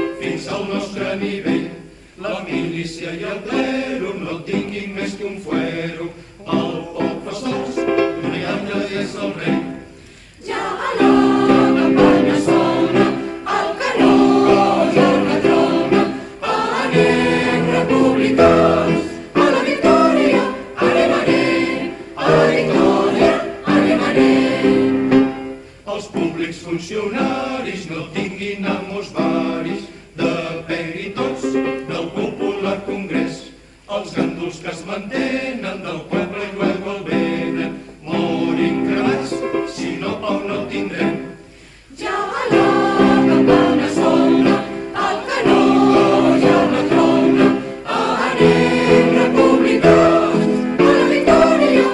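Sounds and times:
choir singing slow chords: 0:00.0 - 0:51.9
singers breathing: 0:01.8 - 0:02.2, 0:06.1 - 0:06.4, 0:09.9 - 0:10.5, 0:13.2 - 0:13.5, 0:16.1 - 0:16.4, 0:19.0 - 0:19.4, 0:25.5 - 0:25.9, 0:41.4 - 0:42.0.

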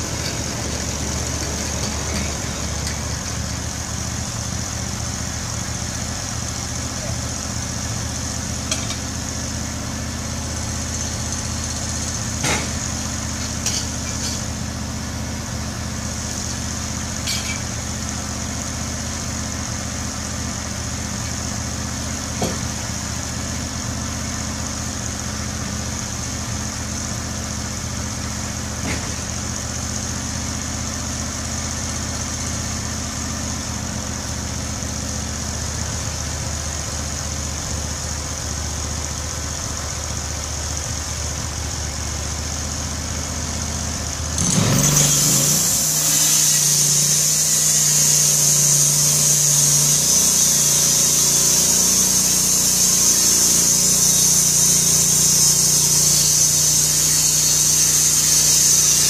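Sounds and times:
sawmill engine idling: 0:00.0 - 0:59.0
band saw blade cutting: 0:44.4 - 0:59.0.

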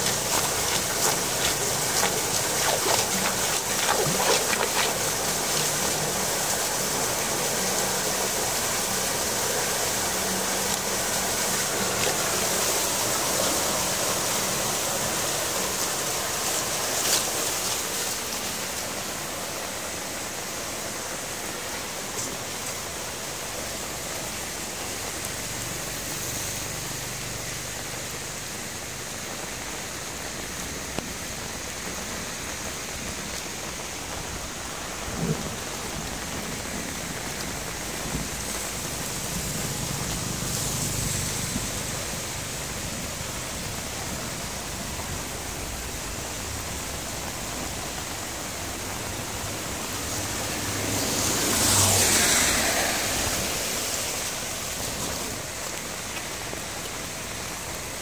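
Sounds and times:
water gushing through a grate: 0:00.0 - 0:19.7, 0:33.5 - 0:56.7
rain falling: 0:00.0 - 0:58.0.

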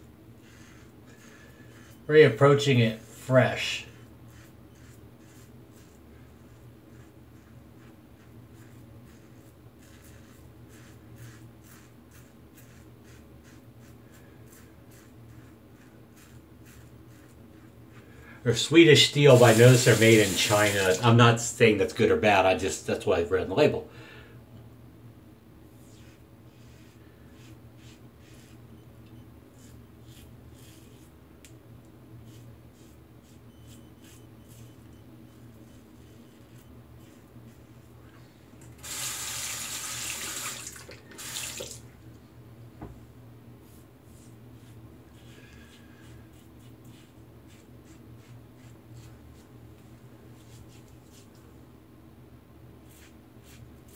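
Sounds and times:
faint low hum: 0:00.0 - 0:18.7, 0:22.6 - 0:38.8
razor scraping stubble: 0:00.4 - 0:13.9, 0:32.2 - 0:37.3.

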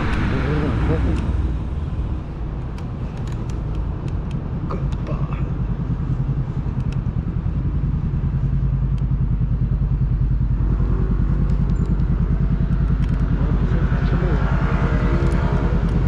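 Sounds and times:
wind buffeting microphone: 0:00.0 - 0:04.7
road rumble: 0:00.0 - 0:16.0
small clicks and rattles: 0:12.7 - 0:13.3.

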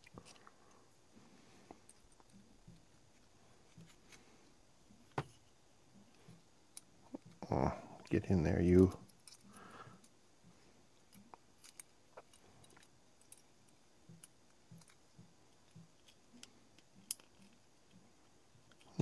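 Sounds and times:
plastic parts clicking: 0:15.6 - 0:17.6.

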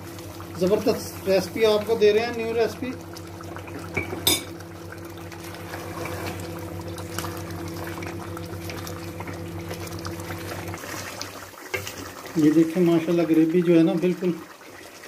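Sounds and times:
gravy bubbling in a pot: 0:00.0 - 0:15.0
steady hum: 0:00.1 - 0:10.8.

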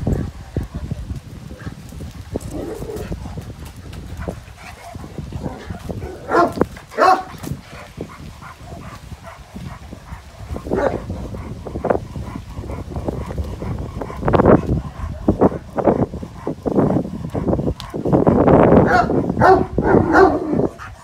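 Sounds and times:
dog barking: 0:04.8 - 0:07.4, 0:10.7 - 0:11.1, 0:18.8 - 0:20.7.

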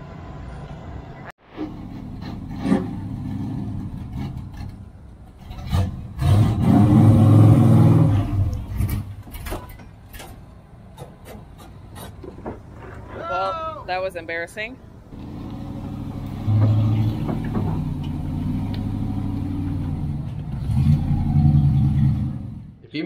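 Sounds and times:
truck engine revving: 0:01.5 - 0:13.2, 0:14.3 - 0:22.8
knocks and clunks: 0:01.6 - 0:06.7, 0:08.4 - 0:13.2, 0:15.1 - 0:22.7.

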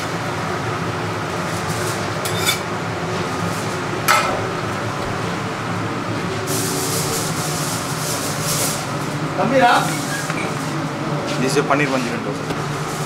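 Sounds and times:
kitchen background noise: 0:01.4 - 0:13.0
dishes and utensils clinking: 0:02.2 - 0:02.8, 0:03.9 - 0:09.2.

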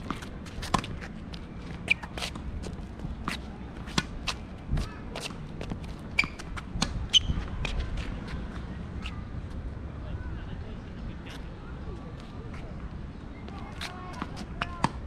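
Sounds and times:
tennis balls struck and bouncing: 0:00.0 - 0:01.2.

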